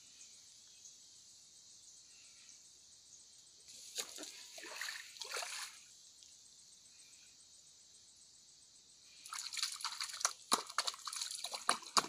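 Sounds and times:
insects hissing: 0:00.0 - 0:10.5
splashing in shallow water: 0:03.7 - 0:05.9, 0:09.2 - 0:12.0.

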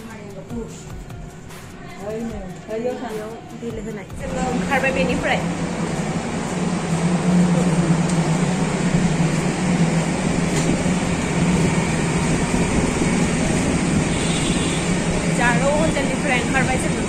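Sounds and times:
even noise wash: 0:04.2 - 0:17.0
low mechanical hum: 0:04.2 - 0:17.0.

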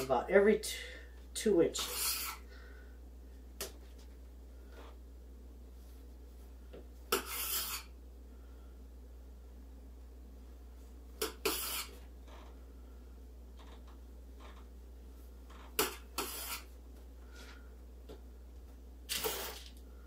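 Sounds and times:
knife scraping through dough: 0:01.8 - 0:02.5, 0:07.1 - 0:08.0, 0:11.2 - 0:12.0, 0:15.7 - 0:16.8.

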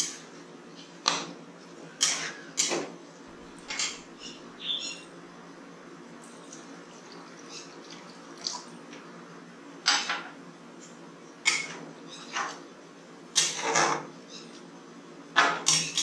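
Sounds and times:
metal spoon stirring and scraping: 0:02.0 - 0:02.8, 0:13.4 - 0:14.0.

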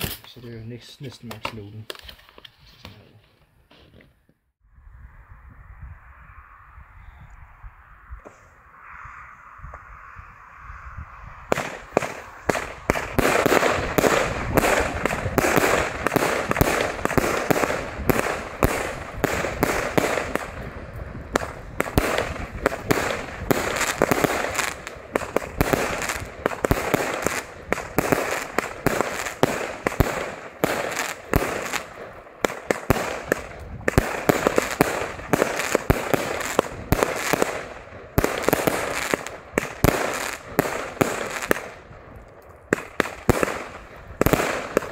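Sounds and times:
firework volley: 0:07.7 - 0:44.9.

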